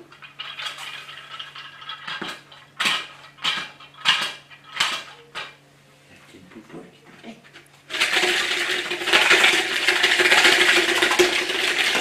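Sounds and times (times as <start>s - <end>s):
wooden beads rattling on wire: 7.9s - 12.0s.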